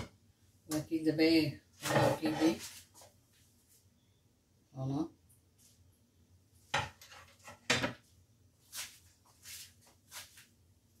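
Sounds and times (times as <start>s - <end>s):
soft rustling: 1.8s - 4.0s, 8.6s - 10.6s.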